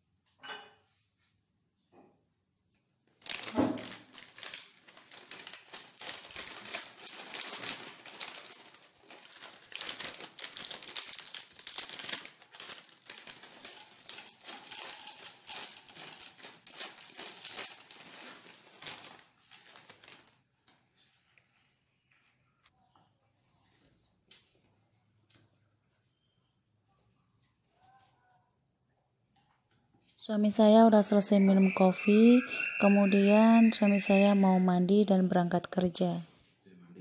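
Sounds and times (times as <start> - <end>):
plastic packet crinkling: 3.1 - 20.8
cereal pouring into bowl: 13.0 - 18.4.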